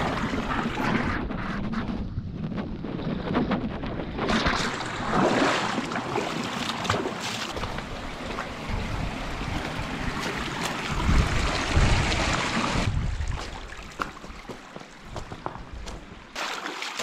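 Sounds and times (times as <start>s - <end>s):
water sloshing and splashing: 0.0s - 1.2s, 4.2s - 15.2s, 16.0s - 17.0s
wind buffeting microphone: 0.0s - 5.3s, 7.6s - 14.5s.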